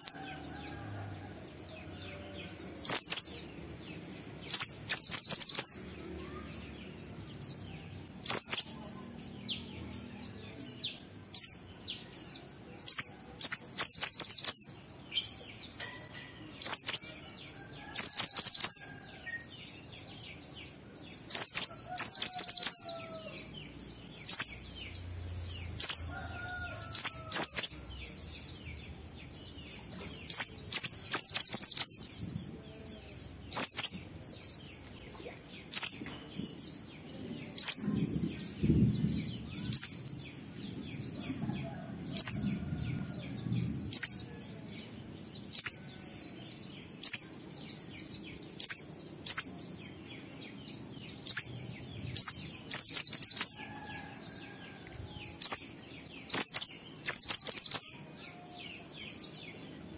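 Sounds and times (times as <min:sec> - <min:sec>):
bird chirping rapid high bursts: 0:02.8 - 0:03.4, 0:04.5 - 0:06.3, 0:08.2 - 0:08.8, 0:11.2 - 0:11.7, 0:12.9 - 0:14.8, 0:16.6 - 0:17.1, 0:18.0 - 0:18.8, 0:21.3 - 0:23.5, 0:24.2 - 0:24.7, 0:25.6 - 0:26.1, 0:26.8 - 0:27.9, 0:30.2 - 0:32.2, 0:33.5 - 0:34.2, 0:51.1 - 0:53.6, 0:56.3 - 0:58.0.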